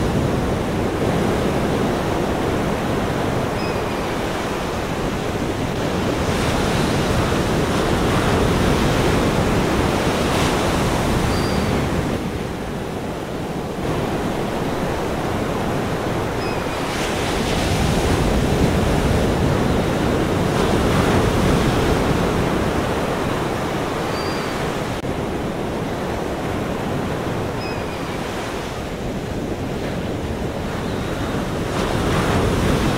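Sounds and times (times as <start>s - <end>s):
ocean waves rushing: 0.0s - 32.9s.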